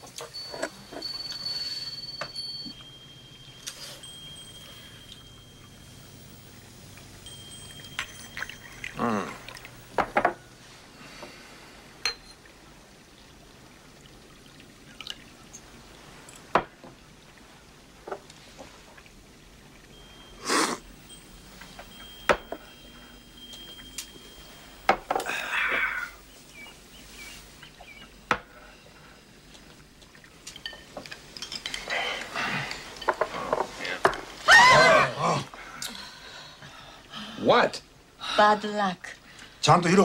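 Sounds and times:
ceramic cups clinking: 0:00.0 - 0:05.8, 0:06.5 - 0:10.4, 0:12.0 - 0:12.4, 0:20.0 - 0:26.6, 0:30.5 - 0:34.3
liquid pouring into cups: 0:06.5 - 0:26.1.

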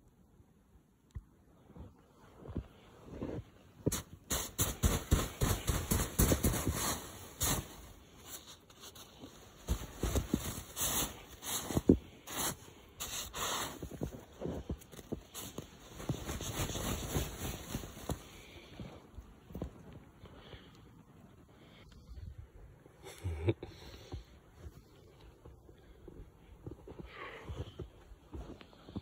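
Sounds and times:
footsteps crunching through snow: 0:01.8 - 0:20.1, 0:24.5 - 0:29.0.

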